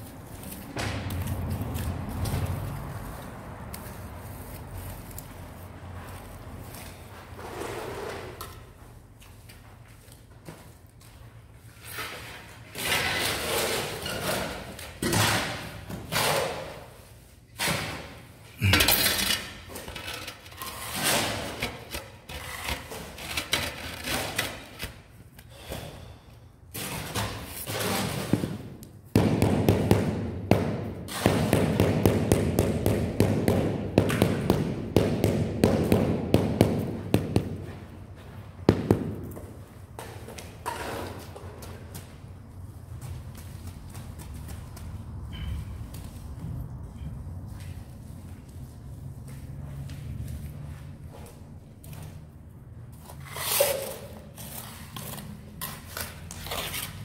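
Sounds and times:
scraping in cement mortar: 53.0s - 57.0s.

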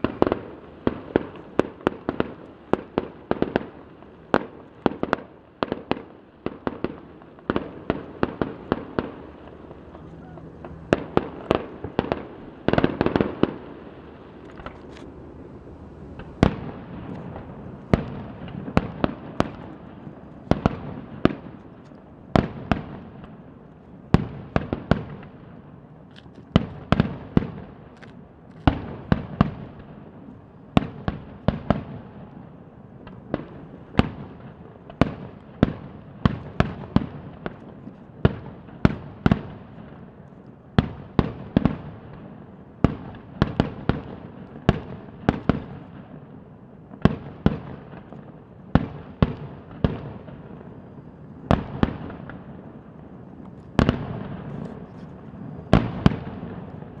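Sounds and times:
fireworks bangs echoing: 0.0s - 23.5s, 40.8s - 57.0s.

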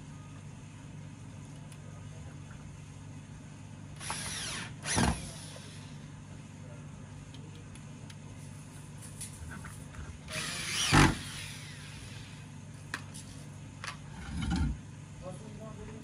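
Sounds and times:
steady low hum: 0.0s - 16.0s
power drill running: 4.0s - 6.0s, 10.3s - 12.5s.

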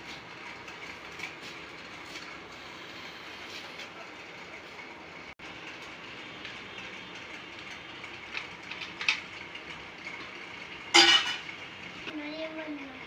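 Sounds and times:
steel cups clinking on a plate: 10.9s - 11.6s.

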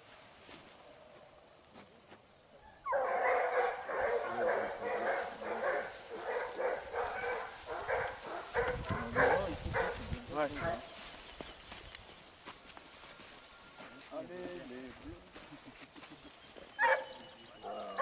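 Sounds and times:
hounds baying: 2.7s - 10.9s, 16.7s - 18.0s.

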